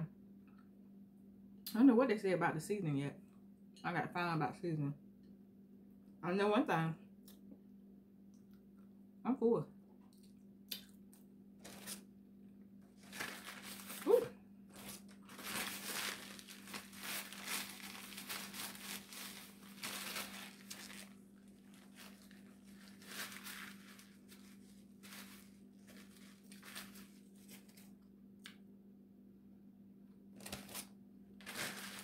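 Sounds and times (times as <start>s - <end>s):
paper napkin crinkling: 11.6s - 12.0s, 12.9s - 28.0s, 30.4s - 32.0s.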